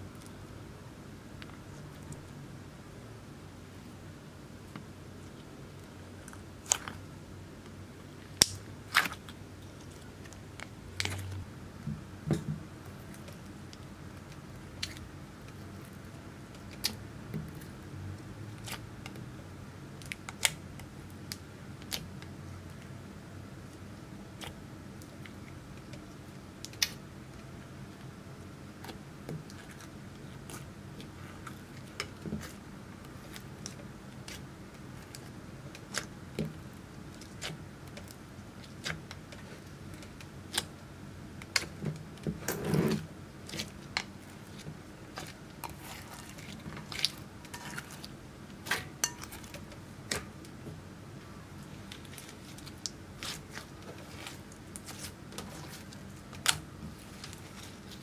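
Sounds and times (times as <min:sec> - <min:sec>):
slime squelch: 0:08.1 - 0:19.4, 0:23.6 - 0:58.0.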